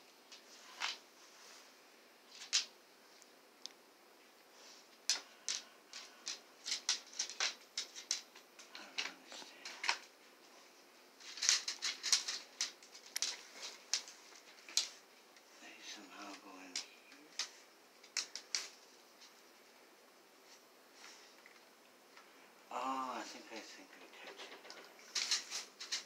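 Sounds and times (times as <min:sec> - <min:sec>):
plastic parts clicking and rattling: 0:05.1 - 0:10.1, 0:11.2 - 0:15.0, 0:17.3 - 0:18.8, 0:23.9 - 0:26.0.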